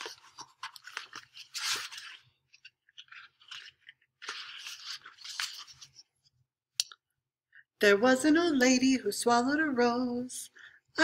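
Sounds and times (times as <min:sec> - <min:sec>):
book pages flipping: 0:00.0 - 0:06.4.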